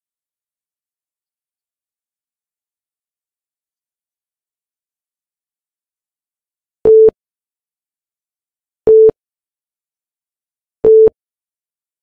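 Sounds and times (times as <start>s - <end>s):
timer beeping: 10.8s - 11.1s.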